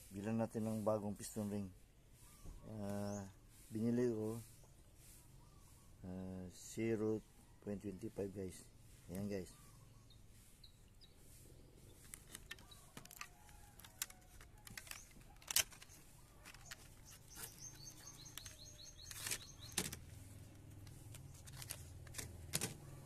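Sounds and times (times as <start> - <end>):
bird chirping: 0.3 - 23.0
plastic packaging rustling: 12.0 - 23.0.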